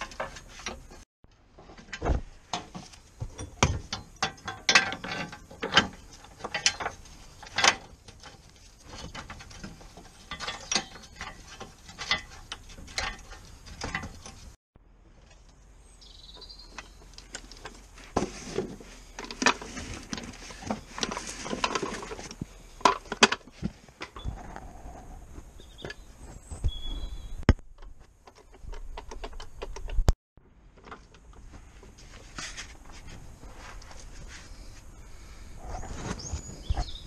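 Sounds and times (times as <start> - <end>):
metallic clanks of tools: 1.9 - 14.6.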